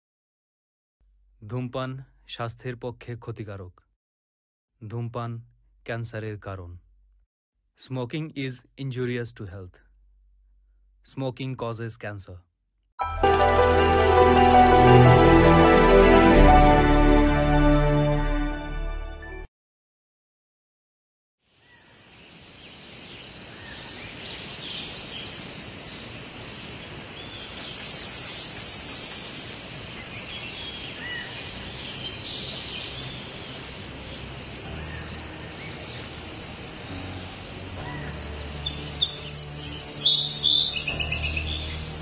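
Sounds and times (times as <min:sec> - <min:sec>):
insects chirring: 0:23.1 - 0:41.5
bird chirps: 0:37.4 - 0:42.0.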